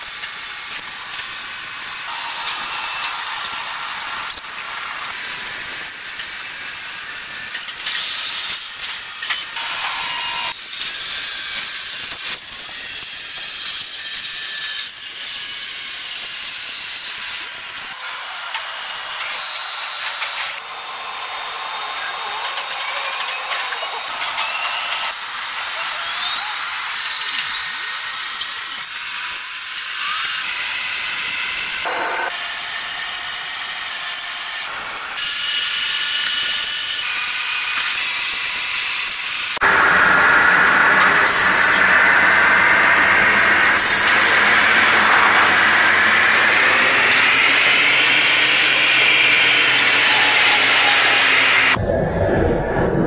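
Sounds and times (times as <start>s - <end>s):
roller drive motors whining: 17.3s - 35.3s, 36.3s - 51.8s
molten steel hissing: 39.3s - 51.8s.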